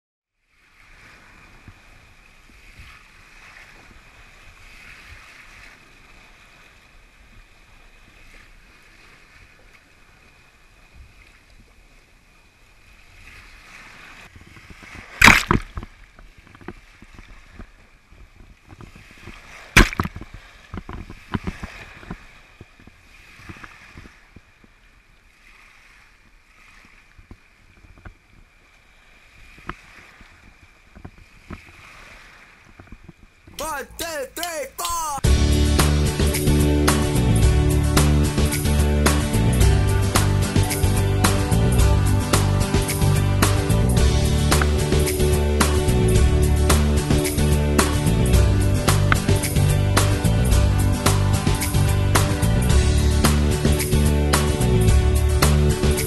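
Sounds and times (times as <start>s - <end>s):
water rushing along hull: 0.5s - 33.5s, 35.2s - 56.0s
water slapping hull: 14.5s - 24.0s.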